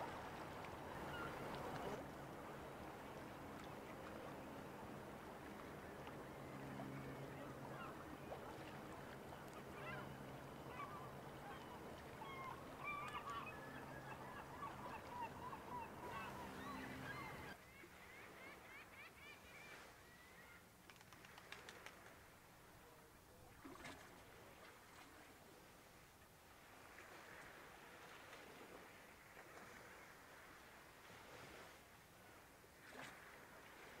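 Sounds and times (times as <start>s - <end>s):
low steady ship hum: 0.0s - 17.6s.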